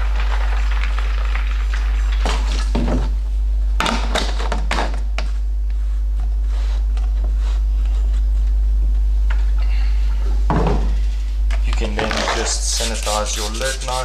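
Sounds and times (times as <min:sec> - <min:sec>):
water pouring into plastic bucket: 0:00.0 - 0:02.9
steady low hum: 0:00.0 - 0:14.0.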